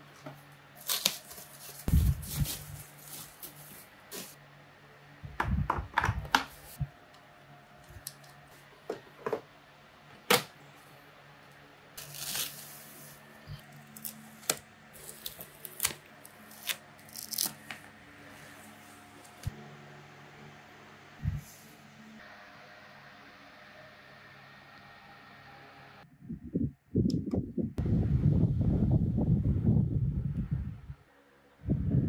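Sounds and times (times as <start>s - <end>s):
foam wrap rustling and tearing: 0.8s - 4.4s, 12.0s - 17.9s.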